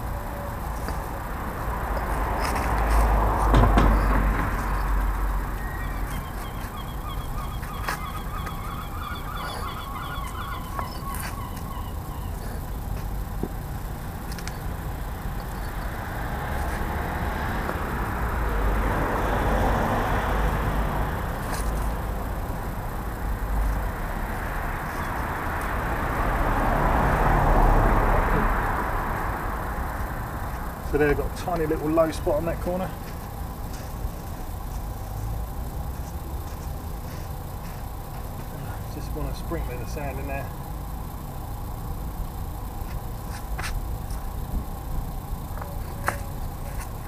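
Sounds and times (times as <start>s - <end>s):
broad rushing noise: 0.0s - 15.0s
bird honking calls: 5.6s - 12.7s.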